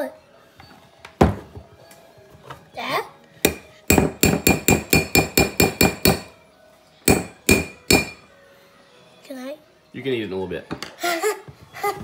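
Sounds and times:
mixer beaters knocking glass bowl: 0:03.5 - 0:06.3, 0:07.1 - 0:08.2.

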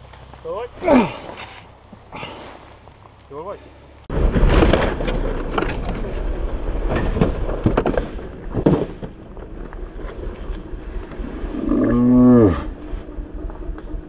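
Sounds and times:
person yelling: 0:00.8 - 0:01.3.

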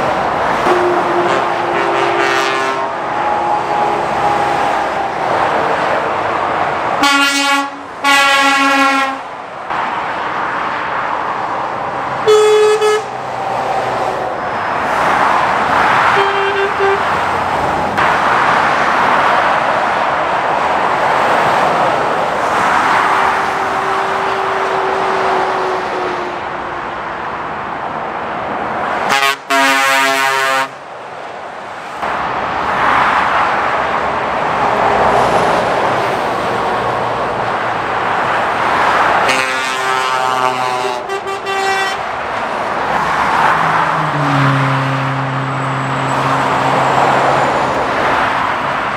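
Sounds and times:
lorries passing at speed: 0:00.0 - 0:48.9
truck horns tooting: 0:00.6 - 0:05.0, 0:07.0 - 0:09.3, 0:12.2 - 0:13.2, 0:15.9 - 0:17.4, 0:22.9 - 0:26.6, 0:29.0 - 0:30.8, 0:39.2 - 0:42.2, 0:43.9 - 0:47.8.

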